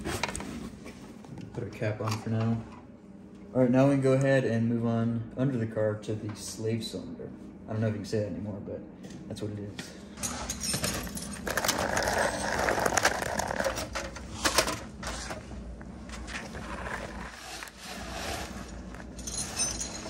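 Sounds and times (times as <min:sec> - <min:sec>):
scraping on concrete floor: 0:10.2 - 0:20.0.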